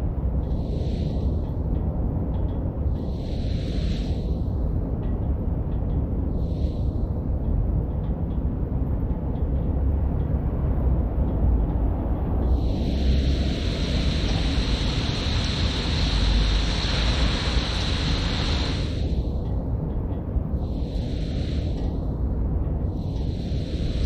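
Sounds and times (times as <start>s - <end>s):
loud hiss: 0.6s - 1.3s, 3.0s - 4.3s, 12.5s - 19.3s, 20.6s - 22.0s, 22.9s - 24.0s
rainy street rumble: 9.7s - 19.1s.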